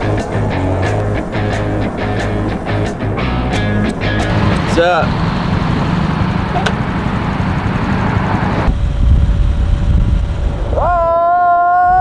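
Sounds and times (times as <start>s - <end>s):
music: 0.0s - 4.8s
small motorcycle running: 0.0s - 11.5s
road and wind rumble: 0.0s - 12.0s
wind noise on microphone: 8.4s - 12.0s.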